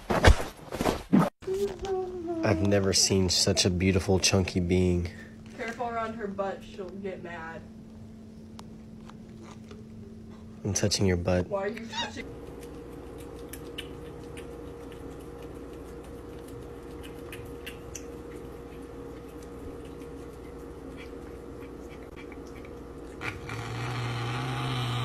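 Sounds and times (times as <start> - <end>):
steady low hum: 1.4 - 25.0
cat chewing and licking: 12.2 - 24.4.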